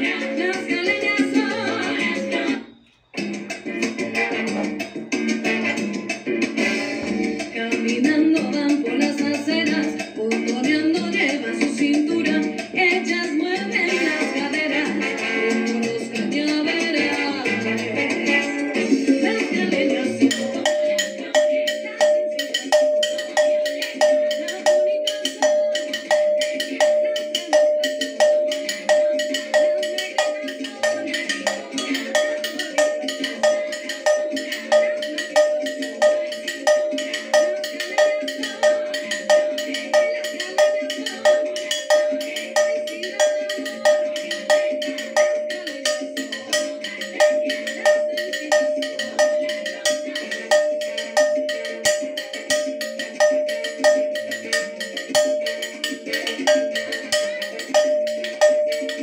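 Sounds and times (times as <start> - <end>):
cowbell struck with wooden stick: 20.3 - 59.0.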